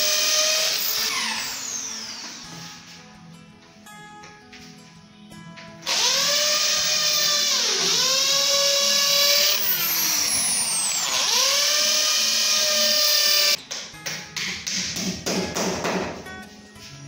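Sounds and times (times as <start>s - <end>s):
electric drill whining: 0.0s - 2.9s, 5.8s - 13.6s.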